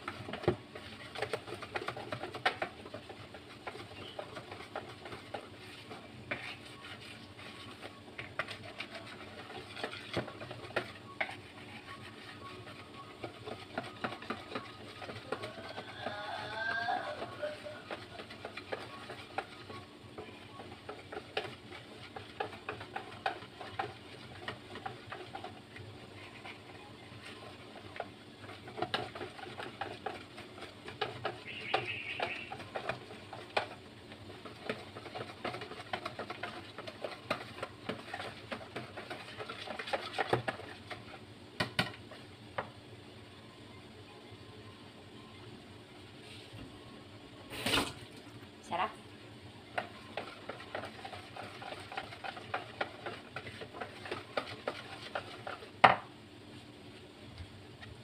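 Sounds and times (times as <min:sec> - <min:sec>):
whisk clicking against bowl: 0:00.0 - 0:11.4, 0:12.4 - 0:25.6, 0:27.3 - 0:42.0, 0:49.7 - 0:56.0.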